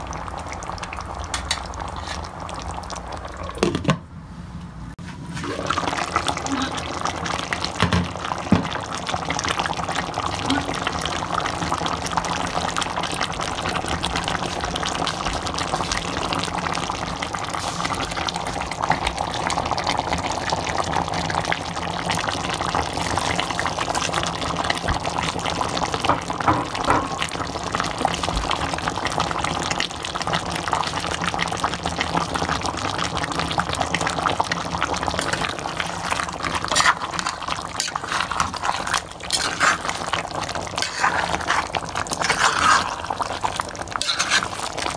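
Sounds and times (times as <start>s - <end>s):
curry bubbling and sizzling: 0.0s - 4.0s, 4.9s - 44.9s.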